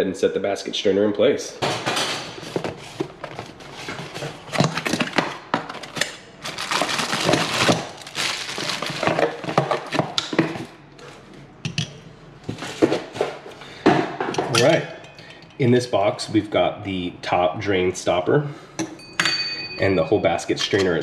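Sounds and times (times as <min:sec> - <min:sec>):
plastic bag crinkling: 0:02.4 - 0:10.7.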